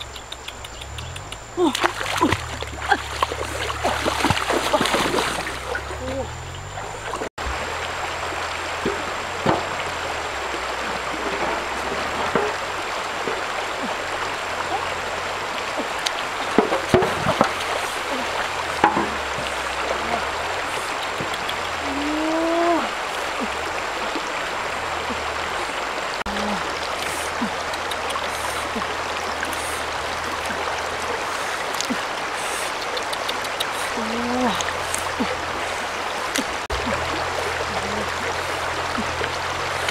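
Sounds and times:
short knocks or splashes: 1.6s - 15.0s, 15.7s - 22.0s
river rushing over rocks: 6.8s - 39.9s.

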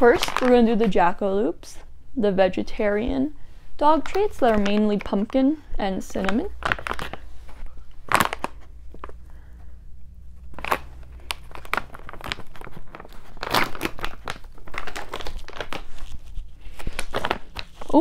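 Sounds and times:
plastic pouch crinkling: 0.0s - 1.1s, 3.9s - 9.2s, 10.4s - 18.0s.

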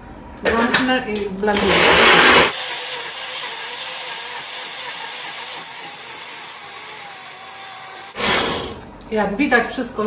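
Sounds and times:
blender motor running: 1.5s - 8.8s.

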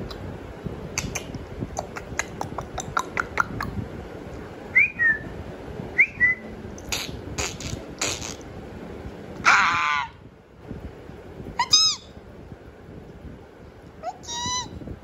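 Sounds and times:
mouth clicks: 0.9s - 3.8s, 6.8s - 8.5s
whistled chirps: 4.7s - 5.3s, 6.0s - 6.5s.

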